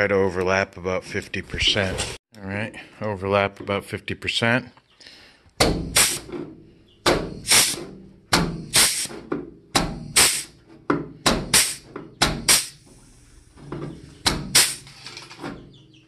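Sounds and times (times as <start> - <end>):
pneumatic flanging tool clunking: 5.6 - 15.8.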